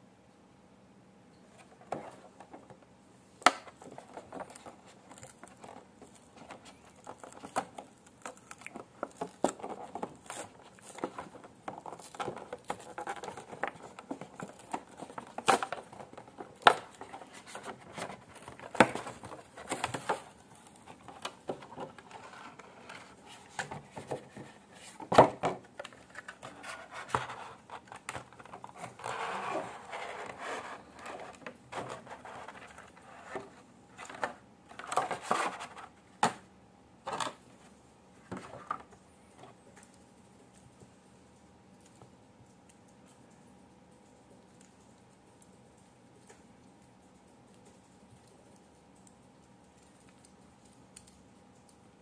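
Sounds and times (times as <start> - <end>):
plastic blister pack crinkling: 3.7 - 22.6.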